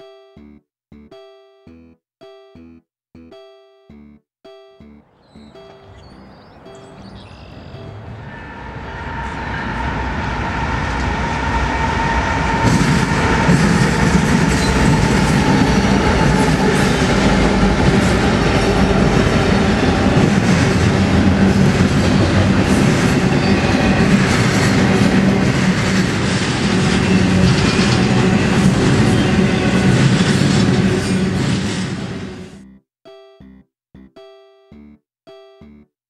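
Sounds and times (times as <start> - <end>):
freight cars rumbling: 5.4 - 32.6
diesel locomotives passing: 5.6 - 32.6
steel wheels clicking over rails: 11.8 - 32.3.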